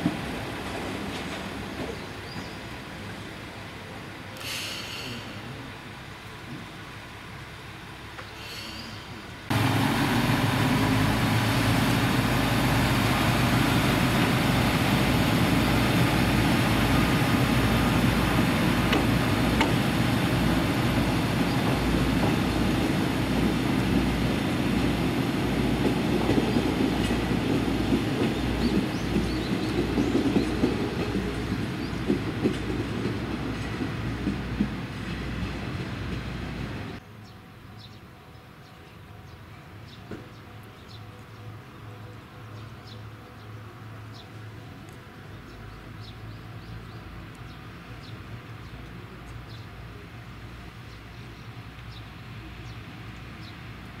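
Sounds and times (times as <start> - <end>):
diesel engine drone: 4.4 - 26.2.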